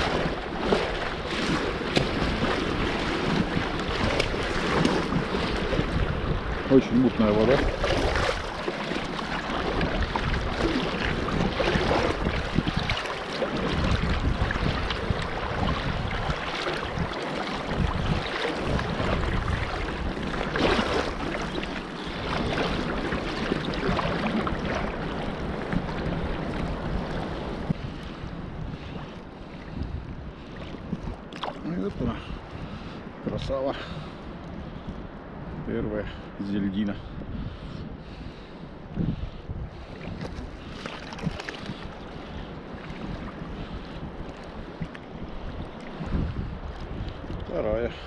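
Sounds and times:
sea water sloshing: 0.0 - 35.6, 37.3 - 48.0
wind buffeting microphone: 0.0 - 48.0.

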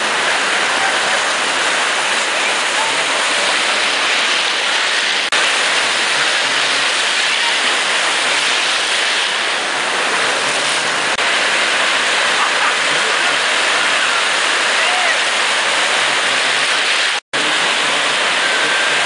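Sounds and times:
ocean surf breaking: 0.0 - 19.0.

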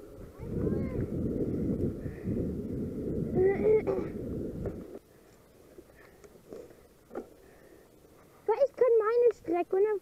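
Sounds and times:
wind and riding noise: 0.0 - 10.0.

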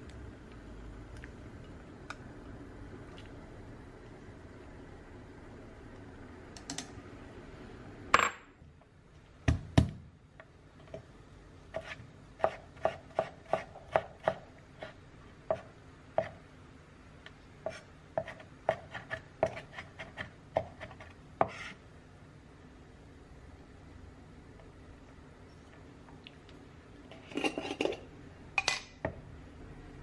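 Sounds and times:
knife chopping on cutting board: 11.8 - 16.4, 17.6 - 21.7.

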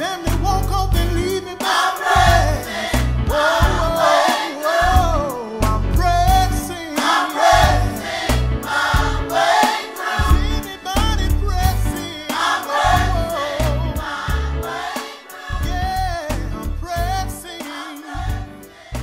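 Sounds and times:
band with heavy bass beat: 0.3 - 14.6
gospel choir singing: 1.1 - 16.4, 17.3 - 19.0.

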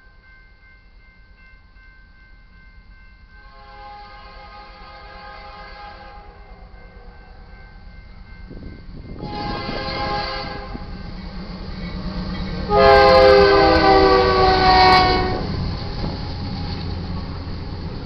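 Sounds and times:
train rumbling: 0.0 - 18.0
locomotive air horn blasts: 3.4 - 6.6, 9.2 - 11.0, 12.7 - 15.6.

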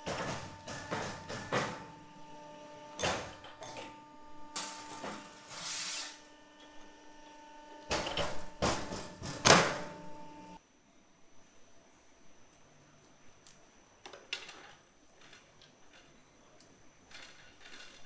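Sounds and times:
steady machine hum: 0.0 - 10.6
scraping slide: 5.2 - 6.2.

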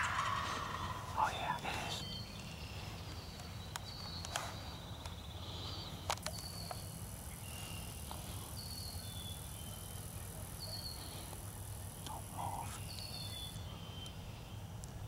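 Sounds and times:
birds whistling calls: 0.0 - 11.2
faint high whine: 0.0 - 14.6.

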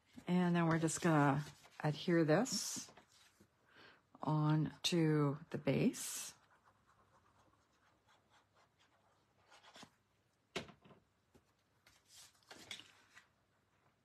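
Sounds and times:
paper sheets shuffling: 0.0 - 3.5, 11.8 - 13.3.

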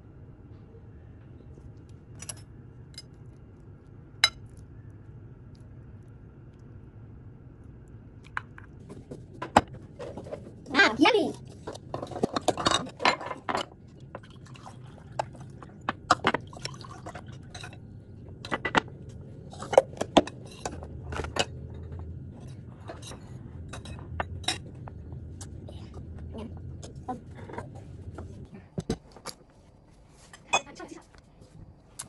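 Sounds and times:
juice pouring into glasses: 14.2 - 15.6, 16.4 - 17.5.

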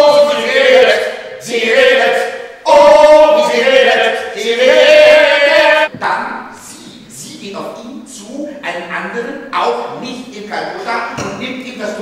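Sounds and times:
choir singing a cappella: 0.0 - 5.9.

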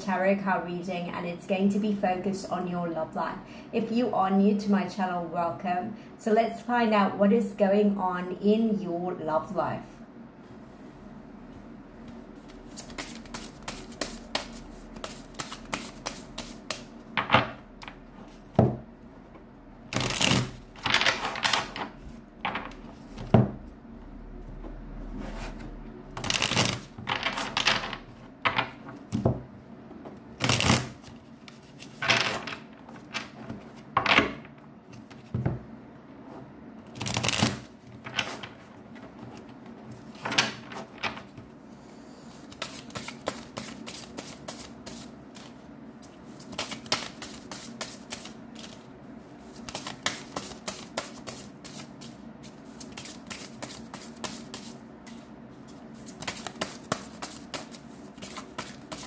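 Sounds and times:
cards being shuffled: 12.4 - 16.9, 19.9 - 23.3, 26.2 - 28.0, 30.4 - 33.8, 37.0 - 41.4, 42.4 - 48.9, 49.5 - 59.0.

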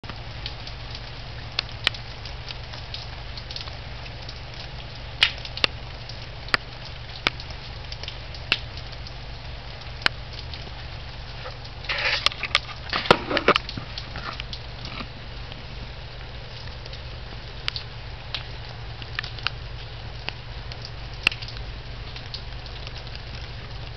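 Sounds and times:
close drips: 0.0 - 23.9
steady rain hiss: 0.0 - 23.9
rough noises: 11.4 - 15.4.

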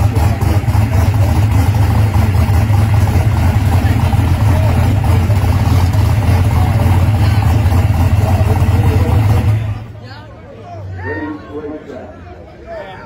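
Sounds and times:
car engine idling loudly: 0.0 - 10.0.

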